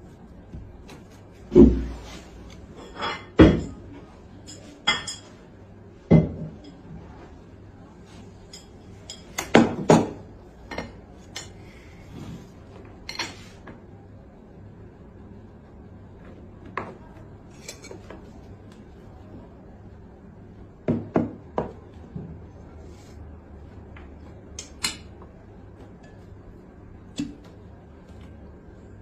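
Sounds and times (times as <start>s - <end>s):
cutlery and dishes clinking: 1.8s - 5.4s, 8.5s - 11.6s, 13.0s - 13.5s, 17.5s - 18.2s.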